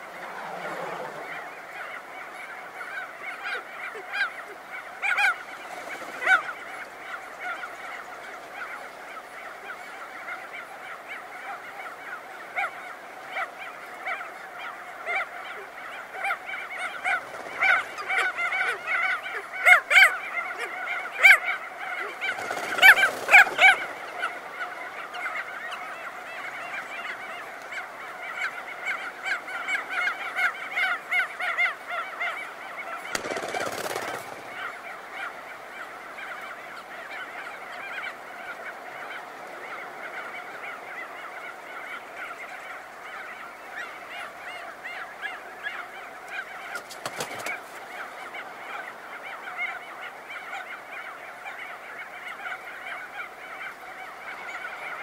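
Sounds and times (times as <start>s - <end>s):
auklets honking calls chorus: 0.0s - 55.0s
bird wingbeats: 5.0s - 8.6s, 16.2s - 19.8s, 21.3s - 24.6s, 33.0s - 35.3s, 46.6s - 48.0s.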